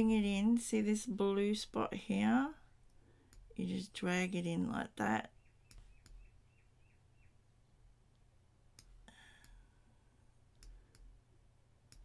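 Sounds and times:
low steady hum: 0.0 - 12.0
computer mouse clicks: 10.5 - 11.2.

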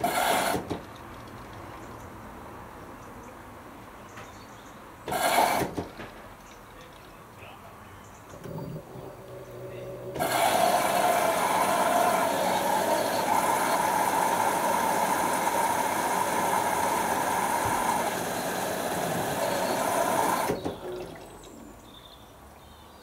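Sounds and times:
washing machine water sloshing: 8.4 - 21.8.

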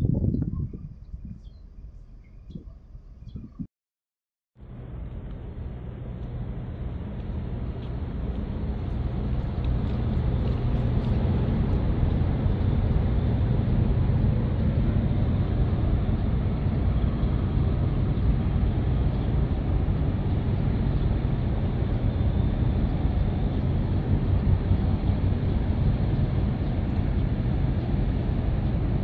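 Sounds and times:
low engine rumble: 4.6 - 29.0.

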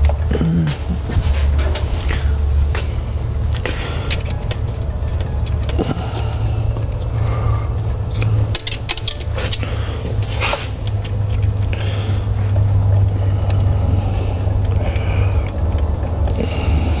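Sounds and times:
steady low hum: 0.0 - 17.0
metallic clicks of hand tools: 8.2 - 9.7.

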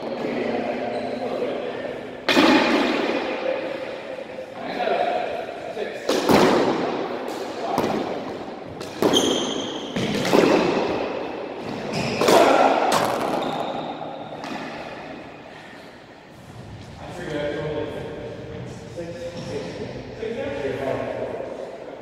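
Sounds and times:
squash ball hitting rackets and walls: 2.2 - 3.6, 6.0 - 15.2
sneakers squeaking on wooden floor: 8.6 - 12.2, 13.2 - 14.9.

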